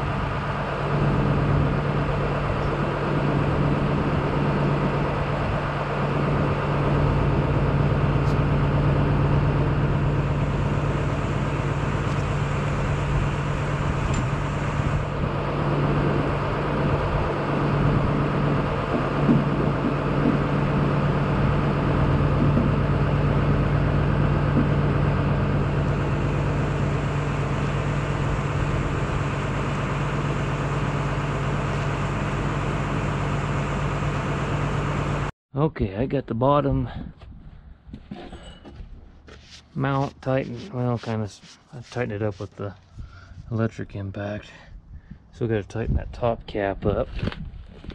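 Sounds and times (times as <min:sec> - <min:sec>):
engine idling: 0:00.0 - 0:35.3.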